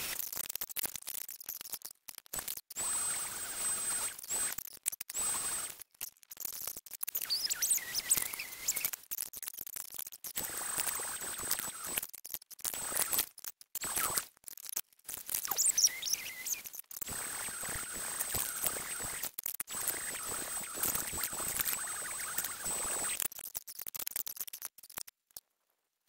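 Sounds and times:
squeaky high-pitched chirps: 0:07.1 - 0:09.0, 0:15.4 - 0:23.2.

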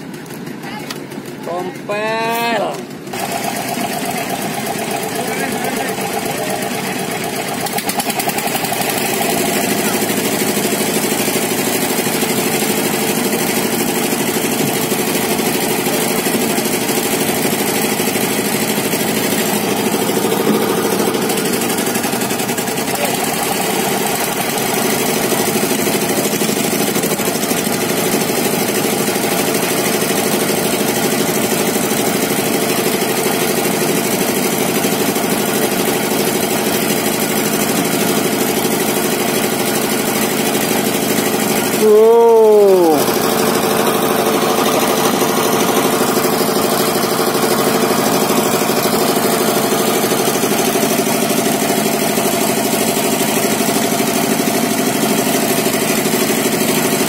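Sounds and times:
engine idling: 0:00.0 - 0:57.0.

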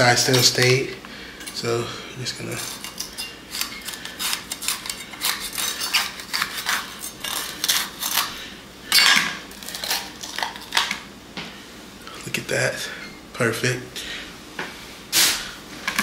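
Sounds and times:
knife crunching pepper: 0:02.5 - 0:08.4, 0:09.5 - 0:11.0.

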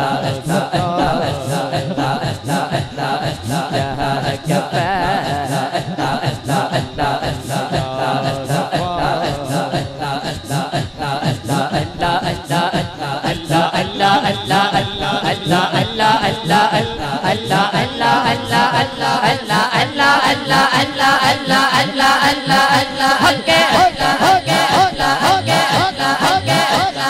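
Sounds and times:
man singing over loudspeaker: 0:00.0 - 0:27.0
men chanting in chorus: 0:00.0 - 0:27.0.

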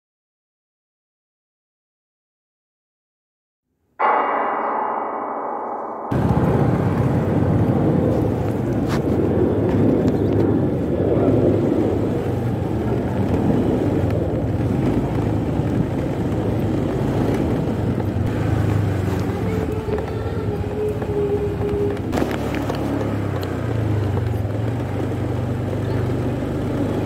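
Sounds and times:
gong-like ringing: 0:04.0 - 0:09.0, 0:18.3 - 0:22.3
road and wind noise: 0:06.1 - 0:27.0
motorbike engine hum: 0:06.2 - 0:27.0.

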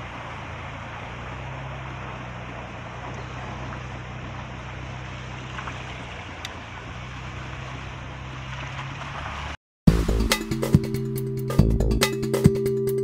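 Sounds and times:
floodwater rushing along street: 0:00.0 - 0:10.3.

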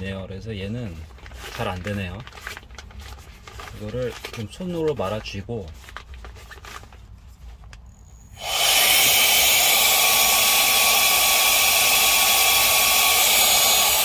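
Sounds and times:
handheld blower whining: 0:08.4 - 0:14.0.

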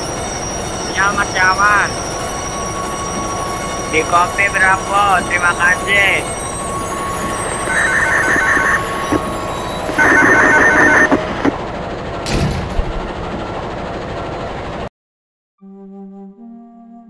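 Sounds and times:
rapid electronic ringing: 0:00.0 - 0:11.4
train running along track: 0:00.0 - 0:14.9.

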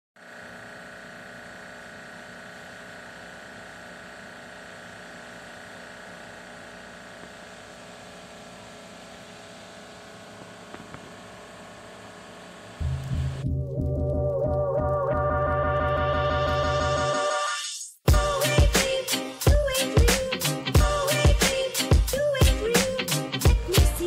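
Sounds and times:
mechanical hum with hiss: 0:00.2 - 0:13.4.

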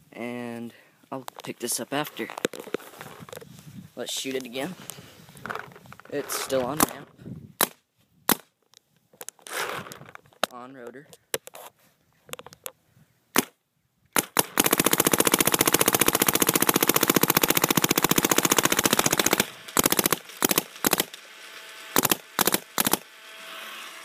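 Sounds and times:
paintball marker firing: 0:07.6 - 0:08.5, 0:13.3 - 0:13.6, 0:14.2 - 0:21.2, 0:22.0 - 0:23.1.

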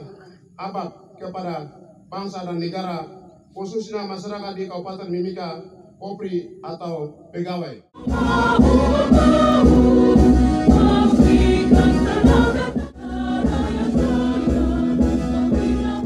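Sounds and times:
amplified choir singing: 0:08.0 - 0:16.0.

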